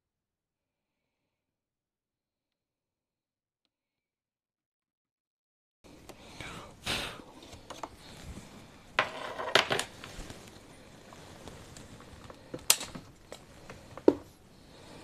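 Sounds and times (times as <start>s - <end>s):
handling clicks and rustles: 7.3s - 14.4s.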